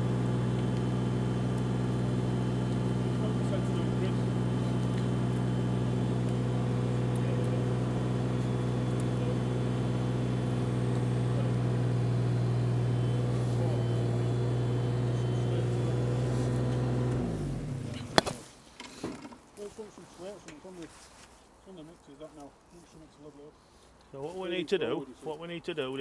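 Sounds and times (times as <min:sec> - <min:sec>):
diesel engine running: 0:00.0 - 0:18.4.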